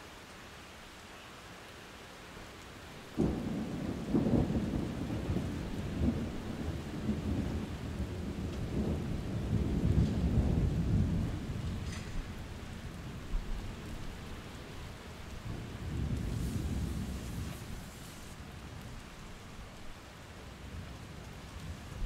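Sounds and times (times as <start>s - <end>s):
rain hissing: 0.0s - 22.0s
thunder rumbling: 3.1s - 19.0s.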